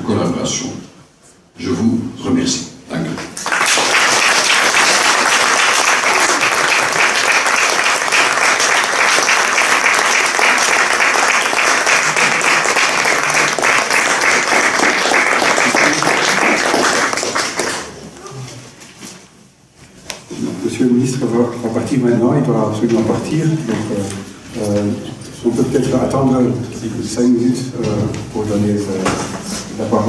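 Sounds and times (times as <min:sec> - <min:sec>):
audience applauding: 0:03.4 - 0:18.2.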